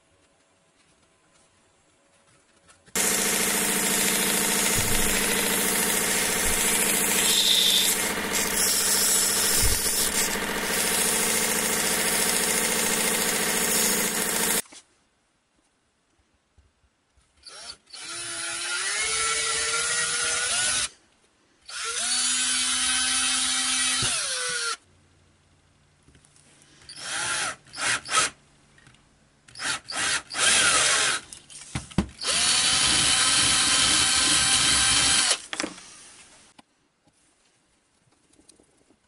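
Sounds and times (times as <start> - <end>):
cordless drill boring into wood: 3.0 - 14.6, 17.5 - 20.9, 21.7 - 24.8, 26.9 - 28.3, 29.6 - 31.2, 32.2 - 36.2.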